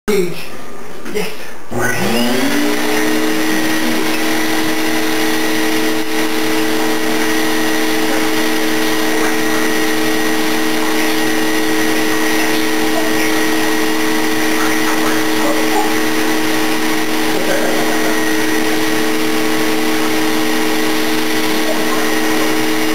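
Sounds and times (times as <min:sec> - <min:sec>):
vacuum cleaner running: 0:01.7 - 0:22.9.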